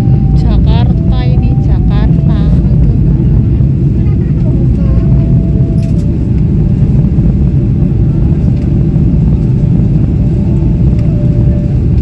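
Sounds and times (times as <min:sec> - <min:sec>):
faint steady whine: 0:00.0 - 0:12.0
jet cabin engine rumble: 0:00.0 - 0:12.0.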